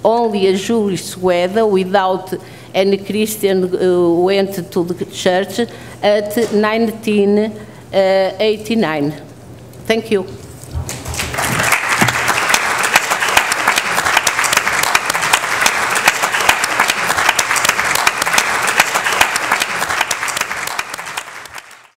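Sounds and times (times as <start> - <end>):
audience applauding: 10.9 - 21.9.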